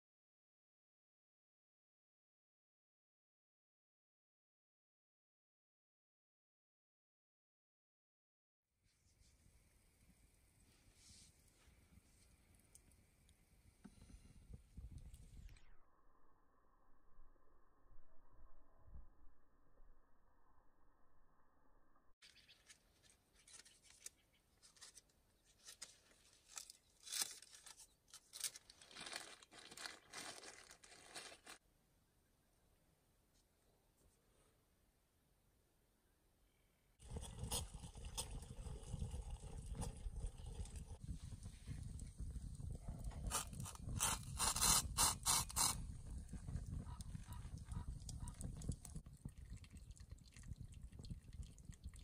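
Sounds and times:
rustling and scraping handling noise: 22.2 - 31.6
water pouring from a kettle: 37.0 - 42.4, 47.7 - 52.0.

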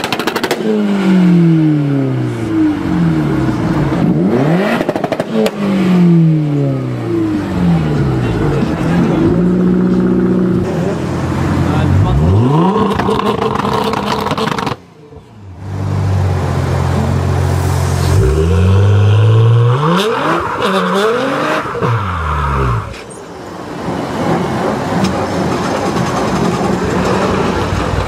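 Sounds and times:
car engine revving: 0.0 - 14.9, 15.6 - 23.1.

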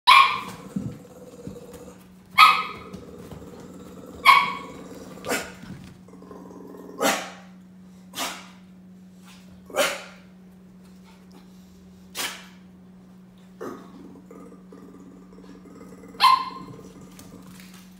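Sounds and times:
dog barking: 0.1 - 0.6, 2.4 - 2.9, 4.2 - 4.6, 9.7 - 10.2, 16.2 - 16.7.

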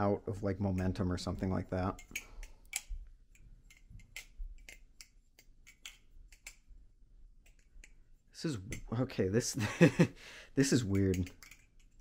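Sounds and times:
metallic clicks of butterfly knife: 11.0 - 12.0.

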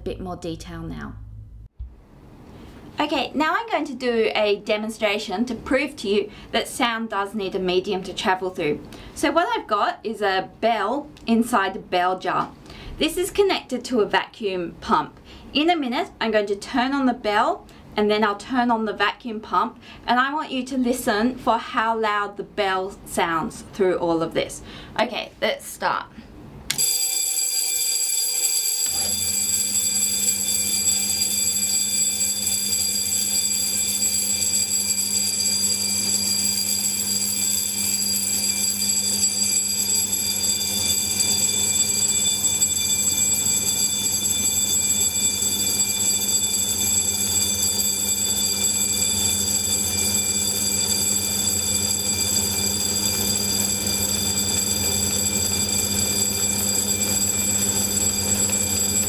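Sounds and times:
electric bell ringing: 26.7 - 59.0.

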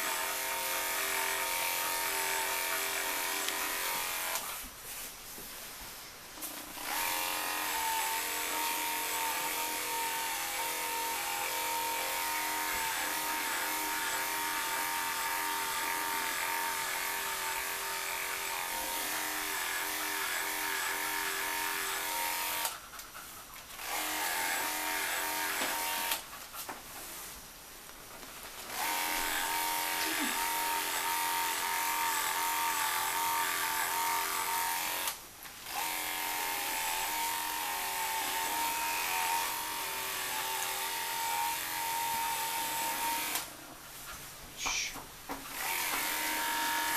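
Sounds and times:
electric hair clipper buzzing: 0.0 - 4.6, 6.8 - 22.8, 23.8 - 26.2, 28.7 - 43.5, 45.5 - 46.9.

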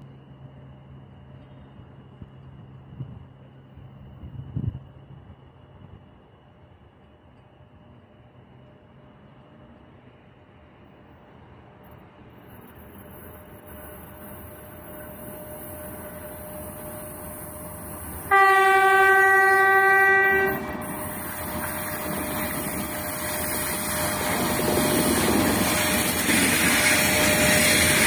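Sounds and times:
freight train rumbling: 0.0 - 28.0
locomotive horn blast: 18.2 - 23.4.

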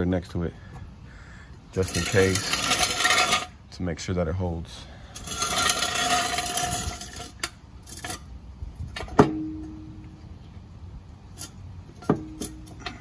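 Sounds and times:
metal stand scraping on concrete: 1.7 - 3.6, 5.0 - 9.8, 11.3 - 13.0
metal clanks ringing: 9.0 - 10.1, 11.4 - 13.0.

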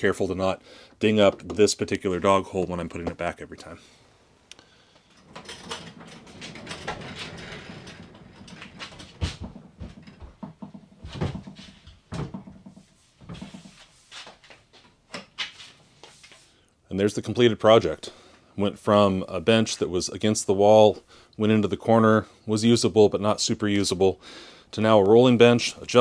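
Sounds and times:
workbench rolling on concrete: 5.1 - 11.7
knocks and bumps: 5.2 - 13.8.

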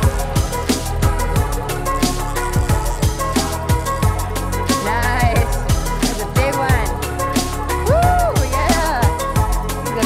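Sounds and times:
deep kick drums: 0.0 - 1.8, 2.4 - 4.4, 7.8 - 9.7.

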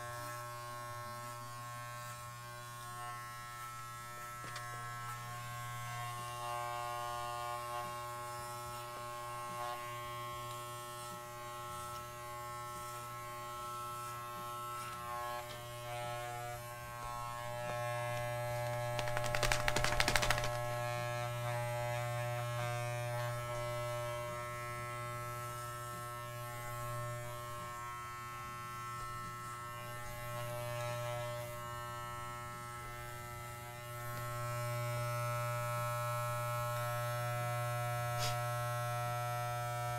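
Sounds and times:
electric clippers buzzing: 0.0 - 39.9
dog shaking itself: 18.7 - 20.7.

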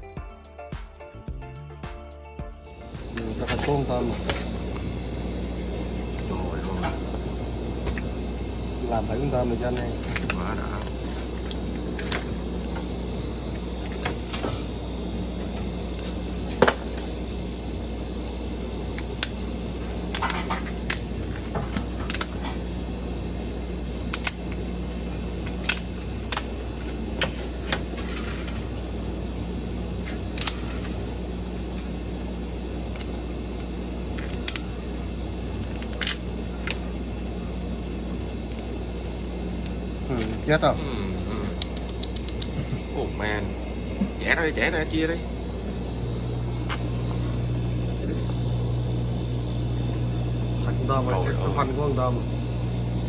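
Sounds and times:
low hum: 2.5 - 53.0
crab shells cracking: 9.7 - 12.3, 20.1 - 22.5, 24.1 - 24.7, 25.4 - 27.0, 32.8 - 34.8, 35.6 - 36.8, 38.4 - 39.8.

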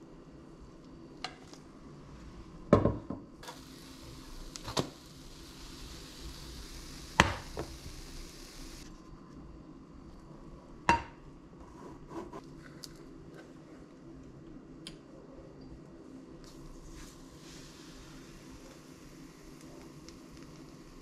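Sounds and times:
faint frying hiss: 0.0 - 11.0, 16.1 - 21.0.

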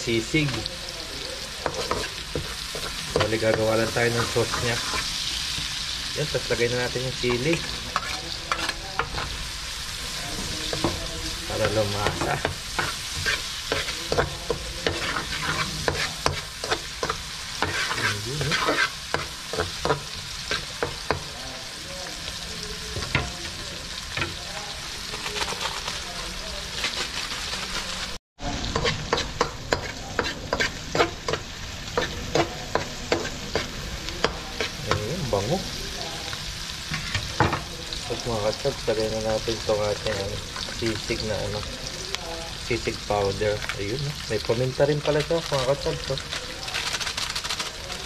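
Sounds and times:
food sizzling in hot oil: 0.0 - 48.0
spatula scraping a pan: 1.4 - 21.4, 26.6 - 28.0, 28.6 - 35.8, 36.4 - 38.3.

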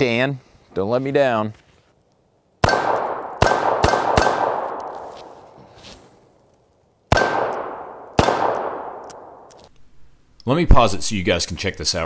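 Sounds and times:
revolver shots: 2.6 - 5.0, 7.1 - 9.5.

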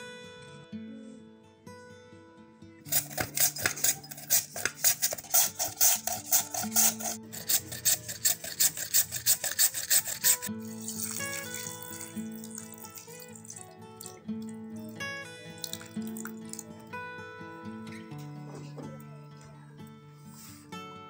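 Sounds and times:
potato rasping on a grater: 2.9 - 13.5
water pouring into a bowl: 2.9 - 16.8.

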